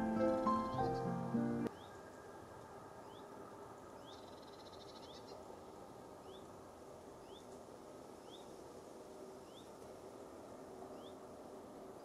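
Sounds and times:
songbird rising call: 0.0 - 2.0
faint background hiss: 0.0 - 12.0.

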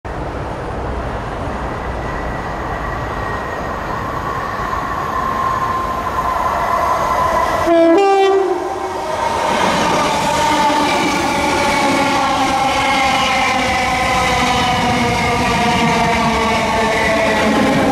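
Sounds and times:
train rail noise: 0.1 - 17.9
train running past: 0.1 - 17.9
two-note train horn: 7.6 - 8.8.

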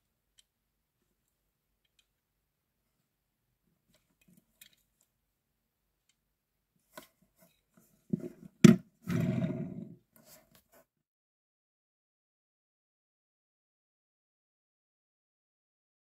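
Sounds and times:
plastic wheels rolling on table: 8.1 - 10.0.

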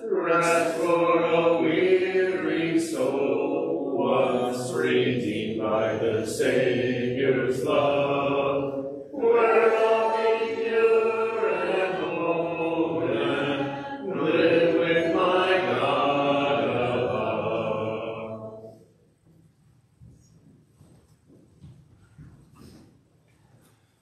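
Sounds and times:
congregation singing a hymn: 0.0 - 18.8.

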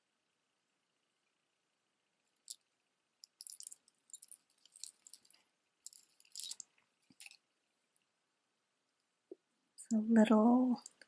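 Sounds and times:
jewelry chains clinking: 3.3 - 6.6.

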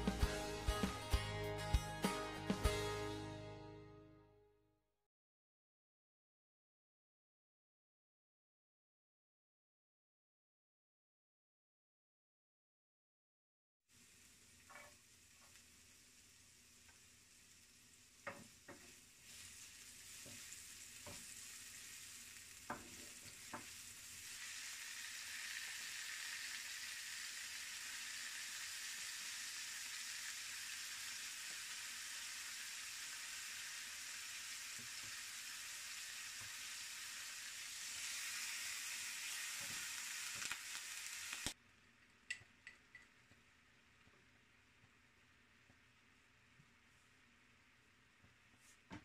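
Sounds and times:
food sizzling in hot oil: 13.9 - 41.6.

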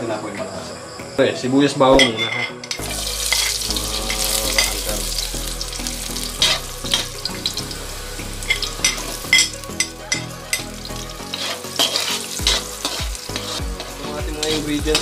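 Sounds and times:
garlic and onions sizzling in oil: 2.0 - 15.0.

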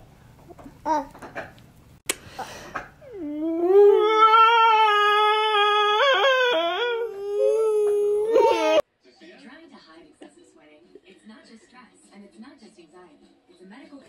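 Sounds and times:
toddler crying: 3.0 - 8.8.

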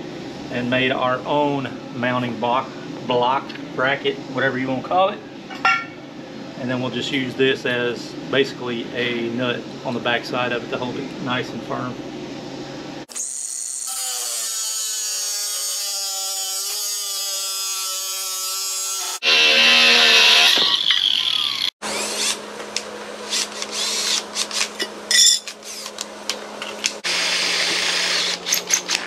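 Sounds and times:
grinder cutting metal: 13.1 - 22.4, 27.0 - 29.0.

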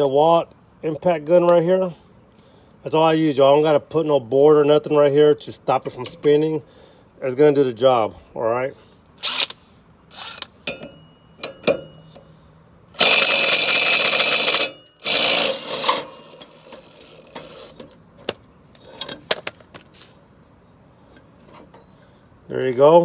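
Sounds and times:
impact wrench hammering: 9.3 - 12.1
tool handling clicks and knocks: 10.4 - 12.3, 15.9 - 20.1.

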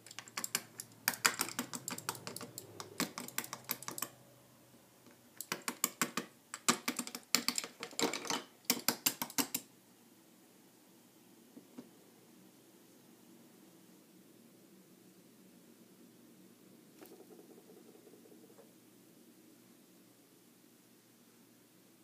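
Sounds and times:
plastic toy clicking on bricks: 0.0 - 4.2, 5.4 - 9.7.

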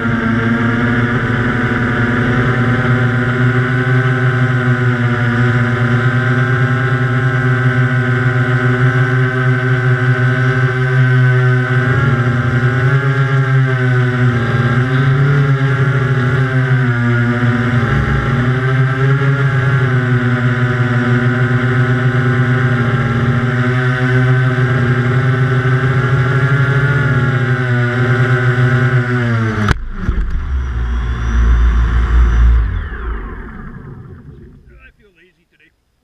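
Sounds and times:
quadcopter motors buzzing: 0.0 - 35.7
low rumble: 29.7 - 35.6.

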